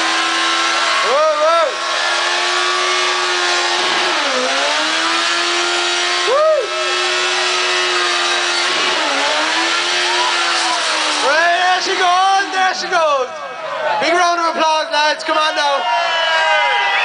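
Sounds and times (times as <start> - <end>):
motorcycle engine at high revs: 0.0 - 12.3.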